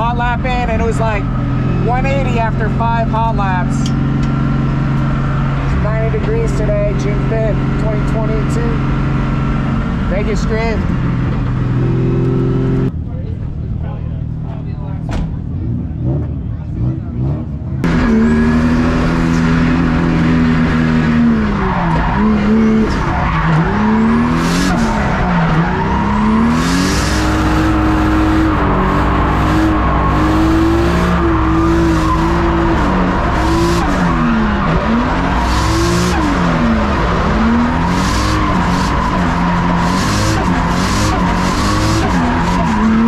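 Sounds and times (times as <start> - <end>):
car engine at high revs: 0.0 - 43.0
tyres squealing and skidding: 16.0 - 43.0.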